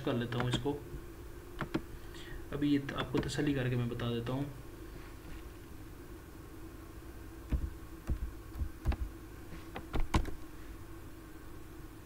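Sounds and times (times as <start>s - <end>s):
faint steady hum: 0.0s - 12.0s
keyboard typing: 7.5s - 9.1s, 9.8s - 10.4s.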